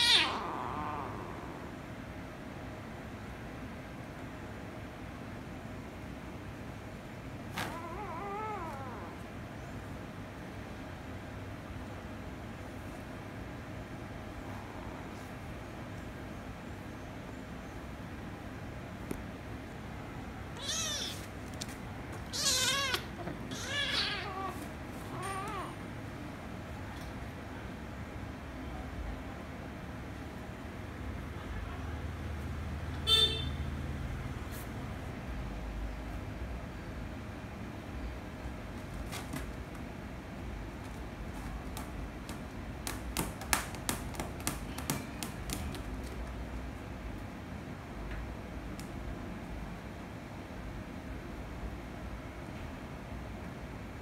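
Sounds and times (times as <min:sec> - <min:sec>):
kitten meowing: 0:00.0 - 0:01.7, 0:07.6 - 0:09.2, 0:20.6 - 0:21.3, 0:22.3 - 0:25.8
low room hum: 0:00.0 - 0:54.0
kittens clicking on wire cage: 0:40.8 - 0:46.3.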